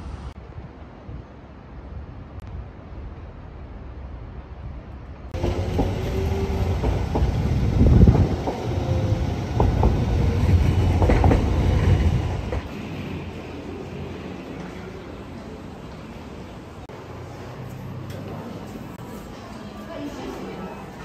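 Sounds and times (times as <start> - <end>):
tram rumble: 0.0 - 21.0
tram wheel whines: 5.4 - 15.5.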